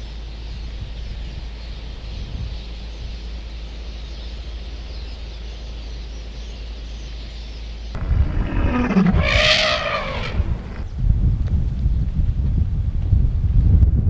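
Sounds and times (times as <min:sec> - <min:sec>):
low wind rumble: 0:07.9 - 0:14.0
elephant trumpeting: 0:08.0 - 0:10.9.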